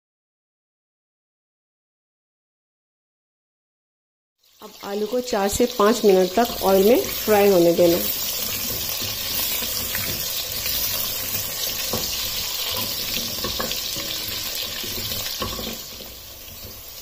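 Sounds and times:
potatoes sizzling in oil: 4.4 - 17.0.

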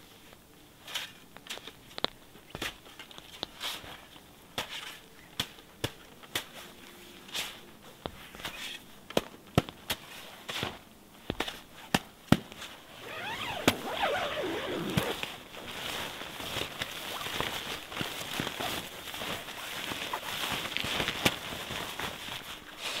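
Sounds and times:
nylon fabric rustling: 12.6 - 23.0
sliding scrapes: 13.0 - 16.2.

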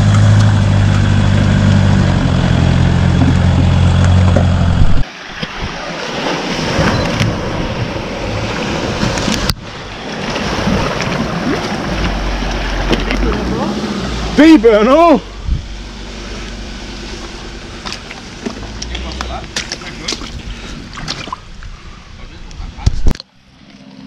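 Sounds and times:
vehicle engine running at low revs: 0.0 - 5.1.

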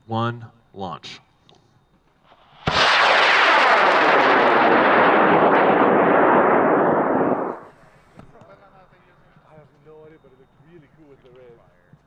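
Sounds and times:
rocket motor burning with loud rush: 2.3 - 7.7.

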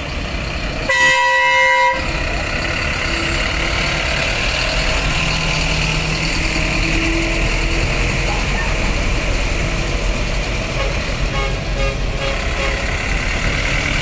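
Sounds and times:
bus engine running: 0.0 - 14.0
bus horn blast: 0.9 - 2.2, 10.7 - 13.0.

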